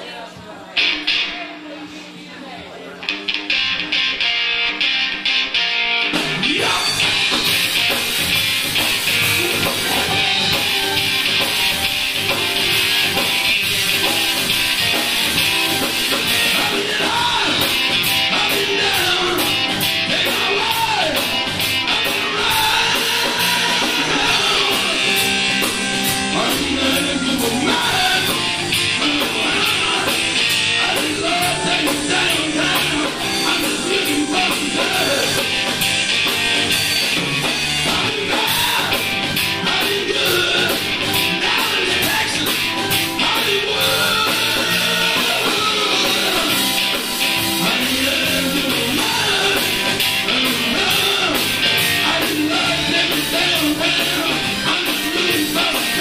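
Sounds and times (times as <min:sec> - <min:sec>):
electric guitars: 0:00.8 - 0:02.1, 0:02.9 - 0:56.0
bass guitar: 0:03.0 - 0:56.0
drum kit: 0:03.0 - 0:56.0
man singing: 0:06.4 - 0:07.4, 0:12.9 - 0:35.6, 0:37.8 - 0:56.0.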